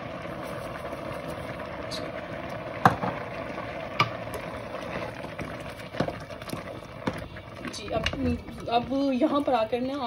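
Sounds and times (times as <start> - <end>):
milk bubbling in pot: 0.0 - 10.0.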